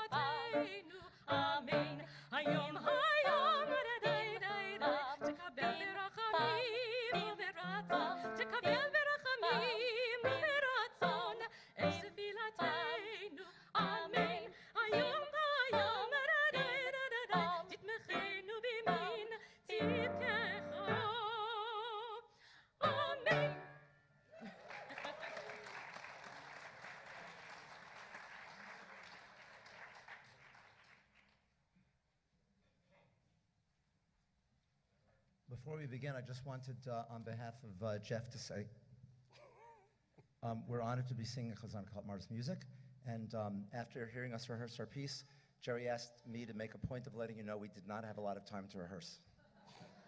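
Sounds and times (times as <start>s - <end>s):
women singing operatic duet: 0.0s - 23.7s.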